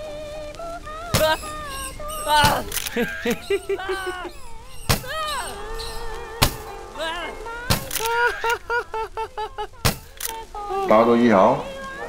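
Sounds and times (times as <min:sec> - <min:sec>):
high voice wailing: 0:00.0 - 0:12.0
sharp cracks of blows: 0:00.9 - 0:08.8, 0:09.6 - 0:10.6.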